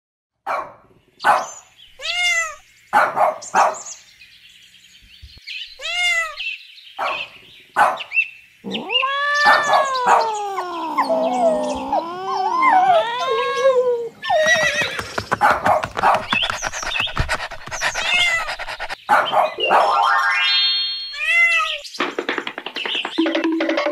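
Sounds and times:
dog barking: 0:00.4 - 0:01.6, 0:03.0 - 0:03.9, 0:07.0 - 0:08.1, 0:09.4 - 0:10.4, 0:15.1 - 0:20.0
cat meowing: 0:02.0 - 0:02.6, 0:05.8 - 0:06.4, 0:08.6 - 0:15.2, 0:17.8 - 0:19.0
horse whinny: 0:14.2 - 0:15.4.

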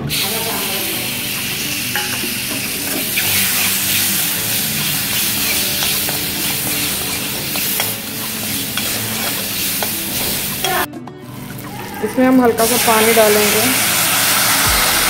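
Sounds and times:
mango pieces sizzling in oil: 0:00.0 - 0:15.0
metal ladle scraping pan: 0:01.7 - 0:10.9.

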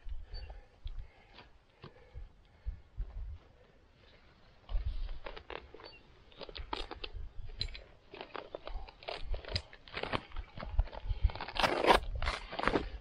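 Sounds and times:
nylon bag crunching and crinkling: 0:08.1 - 0:13.0.

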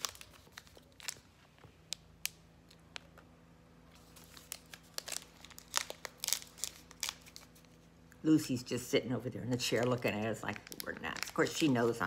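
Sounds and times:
plastic wrapper crinkling: 0:00.0 - 0:03.2, 0:03.9 - 0:07.9, 0:09.6 - 0:12.0.

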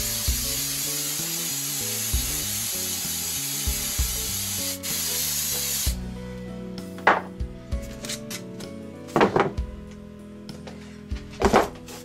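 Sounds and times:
aerosol spray can hissing: 0:00.0 - 0:06.0.

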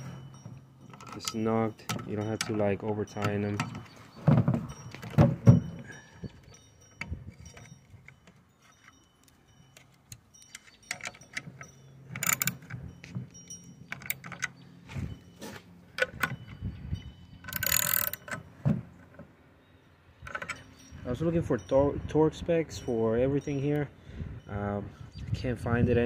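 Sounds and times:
metallic clinks of bolts: 0:00.0 - 0:04.0, 0:04.6 - 0:19.2, 0:20.2 - 0:21.1
metallic rattle: 0:00.0 - 0:19.2, 0:20.2 - 0:21.1.

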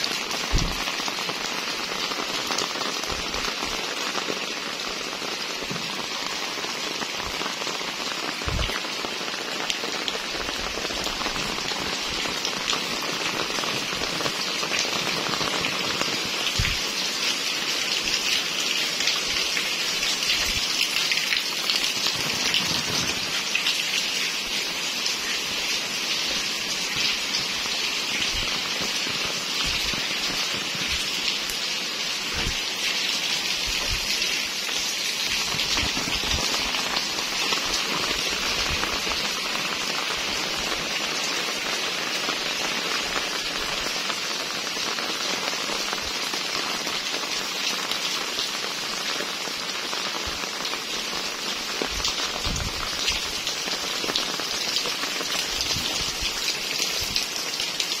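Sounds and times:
rain on concrete and puddles: 0:00.0 - 0:58.0.

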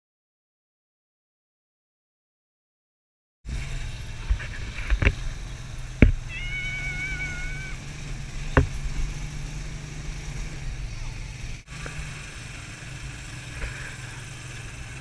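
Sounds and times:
buggy engine drone: 0:03.5 - 0:15.0
sharp knocks: 0:08.5 - 0:09.1.

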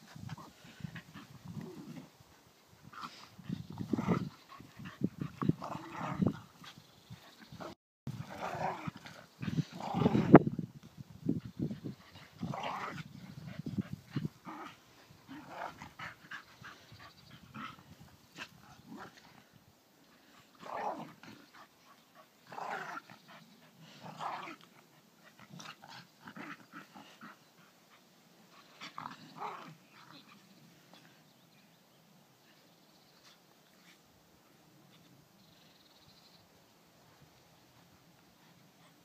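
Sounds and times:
dogs growling: 0:03.0 - 0:06.6, 0:07.2 - 0:10.4, 0:12.0 - 0:19.4, 0:20.5 - 0:21.7, 0:22.4 - 0:27.4.

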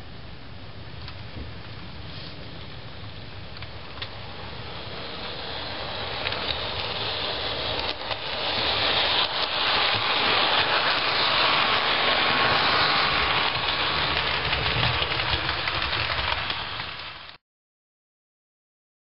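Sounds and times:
model train running on track: 0:02.5 - 0:17.4.

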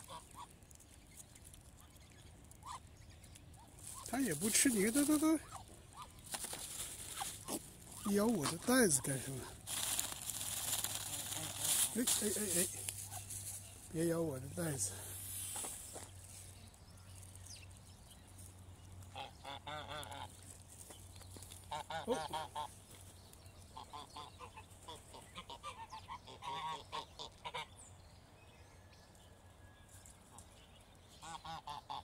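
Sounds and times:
waterfowl honking: 0:19.1 - 0:20.3, 0:21.6 - 0:22.7, 0:23.8 - 0:27.7, 0:31.2 - 0:32.0.

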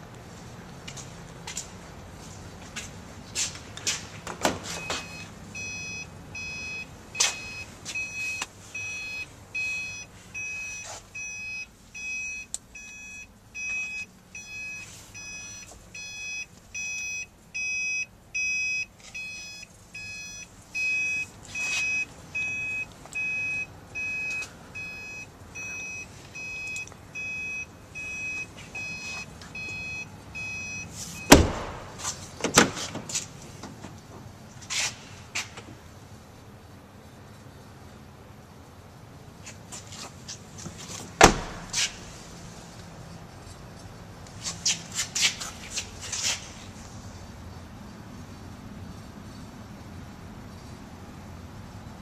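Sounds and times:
car warning chime beeping: 0:04.8 - 0:31.4
loud thump: 0:31.3 - 0:32.8, 0:41.2 - 0:41.8.

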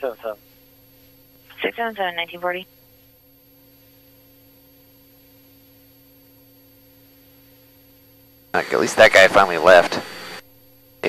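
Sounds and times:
faint intercom hum: 0:00.0 - 0:00.4, 0:01.5 - 0:02.7, 0:08.6 - 0:10.4.

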